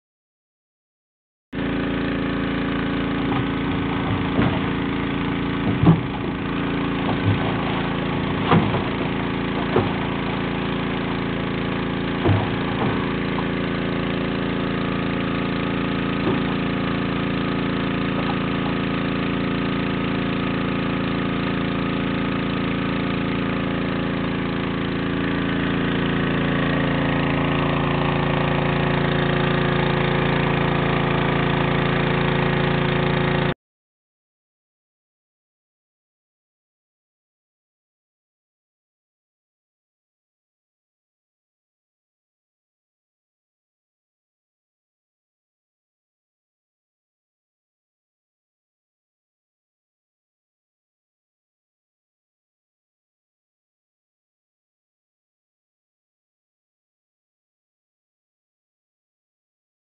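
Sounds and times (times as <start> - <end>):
engine running steadily: 1.6 - 33.6
sharp knocks: 8.3 - 10.0.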